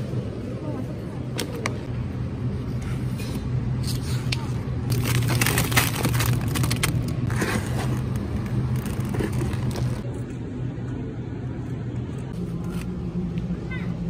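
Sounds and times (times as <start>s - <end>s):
supermarket hum and rumble: 0.0s - 14.0s
plastic packaging crinkling: 4.9s - 10.0s.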